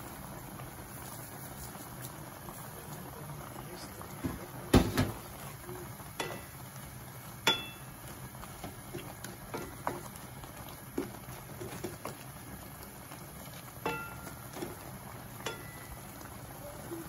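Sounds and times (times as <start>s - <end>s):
sauce bubbling: 0.0s - 17.0s
wooden spatula knocking on pan: 8.6s - 10.1s.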